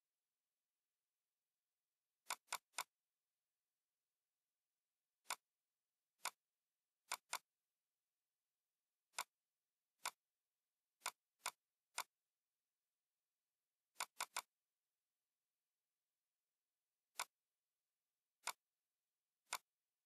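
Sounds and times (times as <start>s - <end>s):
computer mouse clicking: 2.2s - 3.0s, 5.2s - 5.5s, 6.2s - 7.5s, 9.1s - 9.4s, 10.0s - 10.3s, 11.0s - 12.2s, 13.9s - 14.6s, 17.1s - 17.4s, 18.4s - 18.6s, 19.4s - 19.8s.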